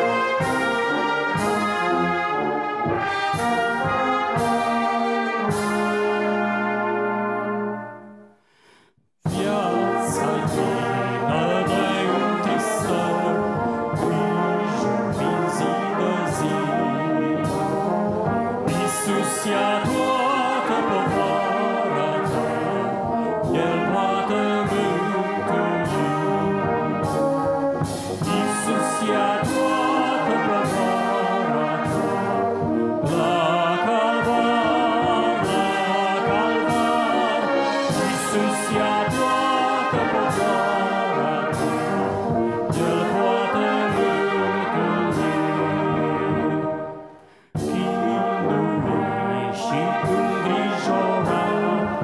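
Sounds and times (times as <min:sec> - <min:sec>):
brass band playing a hymn: 0:00.0 - 0:52.0
percussion beat: 0:09.2 - 0:15.8, 0:22.3 - 0:44.4.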